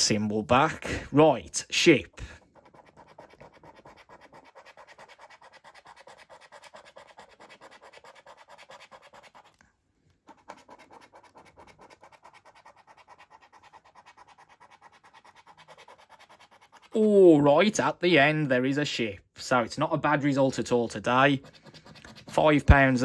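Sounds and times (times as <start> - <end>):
coin scratching scratchcard: 2.4 - 9.6, 10.3 - 17.0, 21.3 - 23.0.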